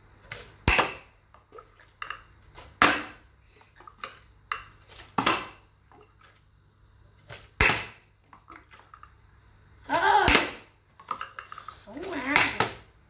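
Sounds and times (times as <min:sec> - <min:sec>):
plastic bottle landing on tile floor: 0:02.8 - 0:03.2, 0:07.3 - 0:08.0.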